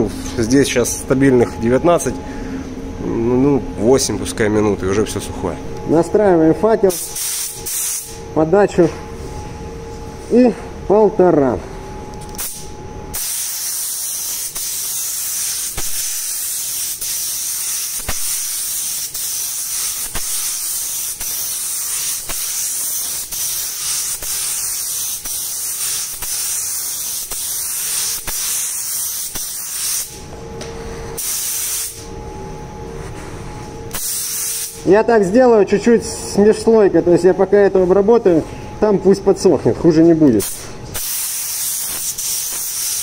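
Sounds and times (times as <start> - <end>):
paint spray gun hissing: 6.9 - 8.2, 13.2 - 30.1, 31.2 - 32.0, 33.9 - 34.7, 40.4 - 43.0.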